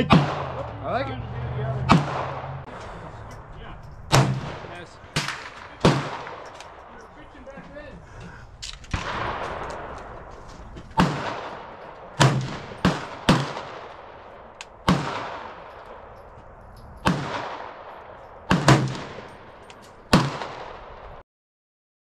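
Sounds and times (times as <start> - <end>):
rifle shots with long echo: 0.0 - 0.9, 1.8 - 3.2, 4.0 - 7.1, 8.8 - 16.4, 17.0 - 21.2.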